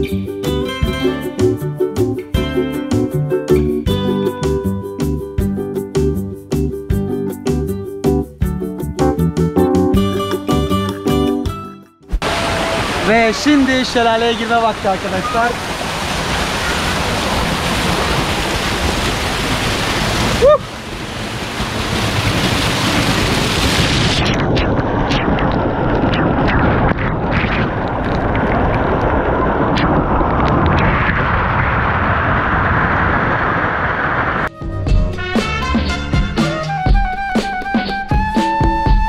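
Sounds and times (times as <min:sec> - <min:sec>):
muffled water splashes: 0:12.1 - 0:34.5
waterfall rushing: 0:12.2 - 0:24.2.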